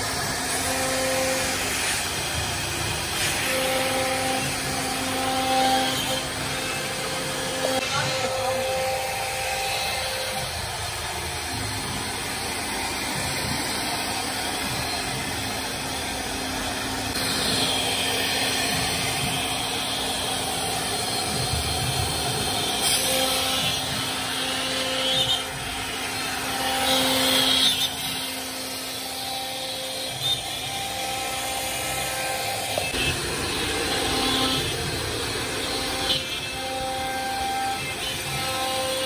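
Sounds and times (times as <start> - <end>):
bit cutting wood: 0.0 - 39.0
router spindle running: 0.0 - 39.0.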